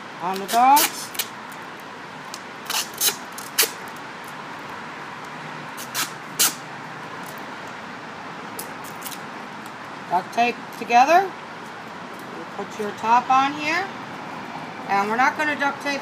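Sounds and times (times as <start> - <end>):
duct tape ripping off roll: 0.3 - 1.4, 2.3 - 4.0, 5.8 - 6.6, 8.6 - 9.2.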